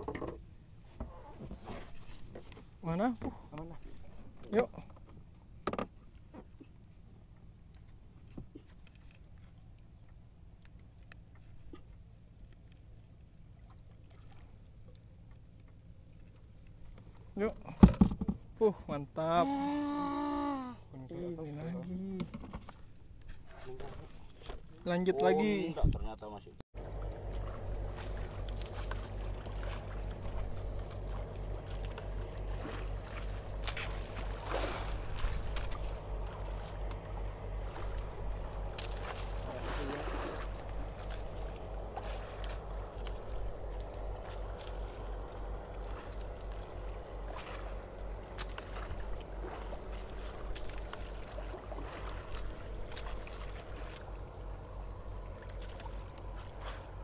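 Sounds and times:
light clicks and splashes: 0.0s - 18.7s, 20.2s - 57.0s
water lapping against hull: 0.0s - 26.2s, 26.8s - 57.0s
boat engine idling: 26.8s - 57.0s.

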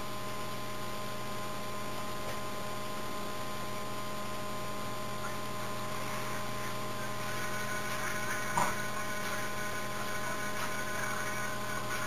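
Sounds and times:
electrical mains hum: 0.0s - 12.0s
constant hiss: 4.9s - 12.0s.

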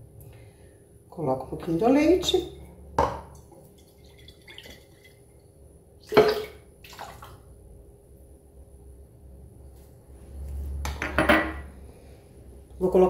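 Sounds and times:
milk sloshing and pouring: 3.4s - 7.5s.

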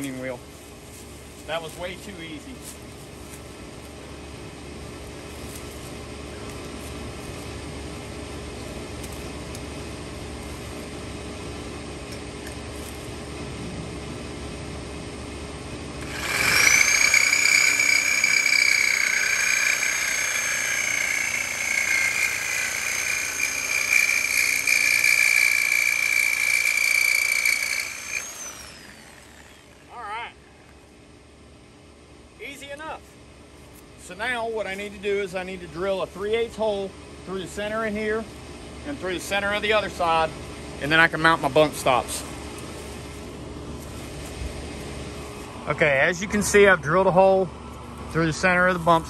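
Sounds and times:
reciprocating saw cutting steel: 16.0s - 30.0s.

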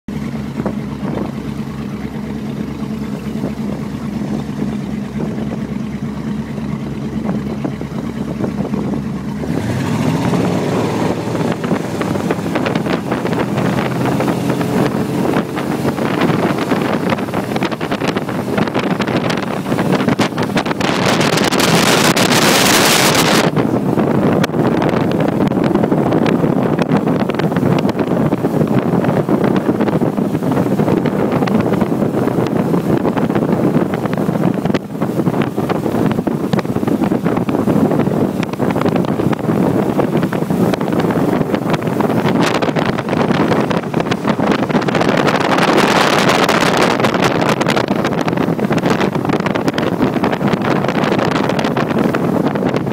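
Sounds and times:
motorboat engine: 0.1s - 52.9s
rush of wind and water: 0.1s - 52.9s.

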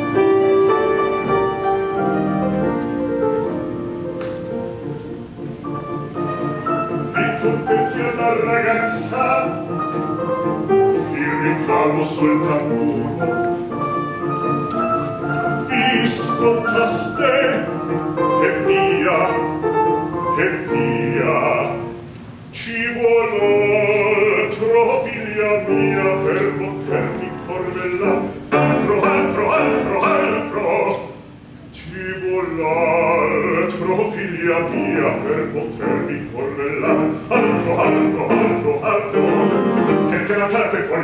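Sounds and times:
grand piano: 0.0s - 41.0s
bass voice singing opera: 7.1s - 9.6s, 11.0s - 13.5s, 15.6s - 19.5s, 20.4s - 22.0s, 22.6s - 31.2s, 31.8s - 41.0s.

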